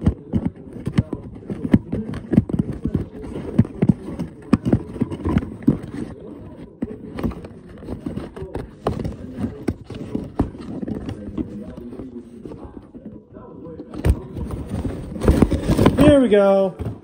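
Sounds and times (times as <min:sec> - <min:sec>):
toy packaging knocks and rustles: 0:13.8 - 0:17.0.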